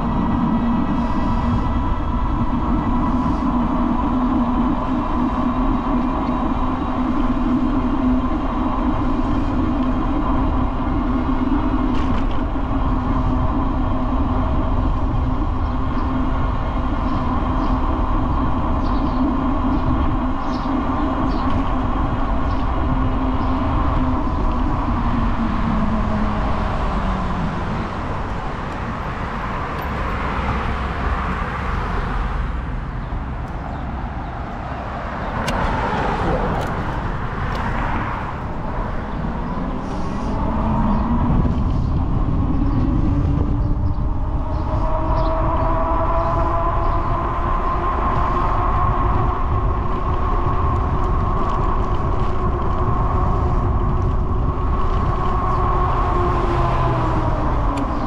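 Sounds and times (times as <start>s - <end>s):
vehicle engine hum and rumble: 0.0s - 58.0s.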